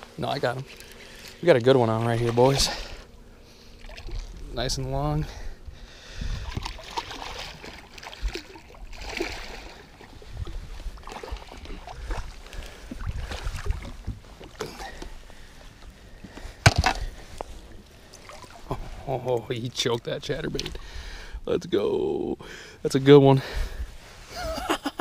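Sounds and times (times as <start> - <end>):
fish thrashing and splashing: 6.4 - 10.2, 11.0 - 15.0, 18.0 - 19.0.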